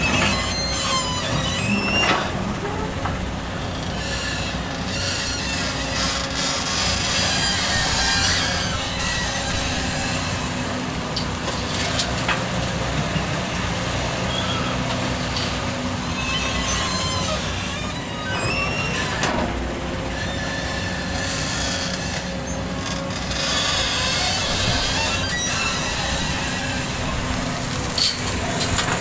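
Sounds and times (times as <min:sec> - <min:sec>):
short high squeaks: 0:00.0 - 0:03.0, 0:14.3 - 0:19.3, 0:20.2 - 0:27.2
excavator diesel engine droning: 0:00.0 - 0:29.0.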